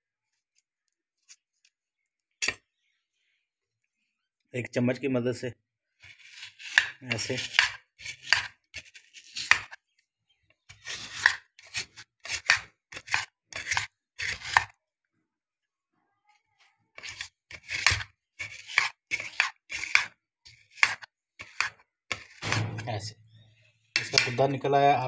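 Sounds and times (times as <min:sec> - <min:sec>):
metal spoon scraping gel: 0:06.0 - 0:09.5.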